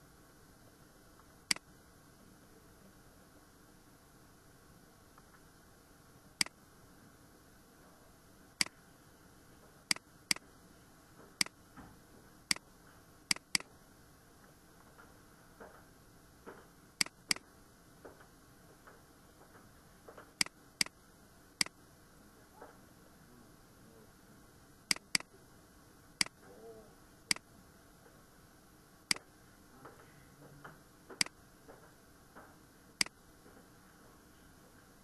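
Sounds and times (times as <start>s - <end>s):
computer mouse buttons clicking: 13.3s - 13.7s, 24.9s - 25.3s.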